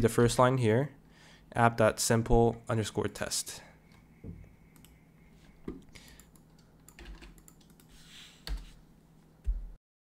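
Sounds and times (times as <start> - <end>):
keyboard keys clicking: 4.7 - 5.0, 6.0 - 8.7.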